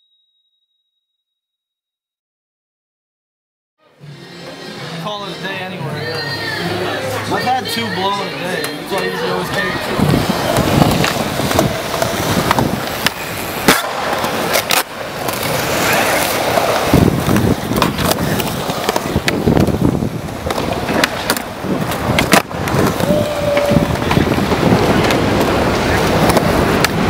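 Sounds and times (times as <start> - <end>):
skateboard wheels rolling on concrete: 4.0 - 27.0
skateboard clacks popping and landing: 10.5 - 27.0.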